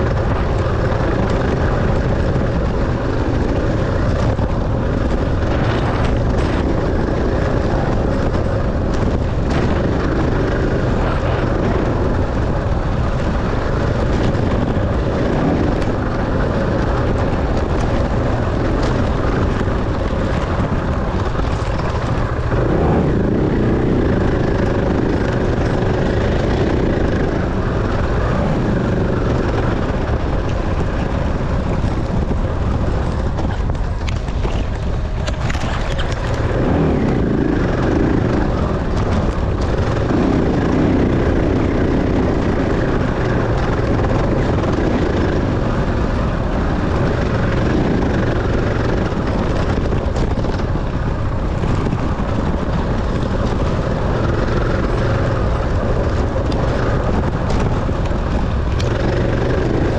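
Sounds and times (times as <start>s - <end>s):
dirt bike engine revving: 0.0s - 31.0s, 35.6s - 49.8s.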